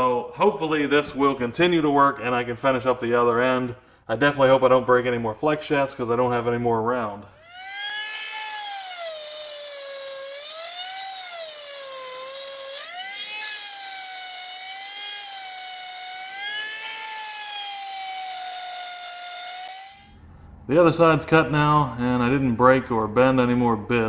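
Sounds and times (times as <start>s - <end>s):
rotary tool whine cutting steel: 7.4s - 20.2s.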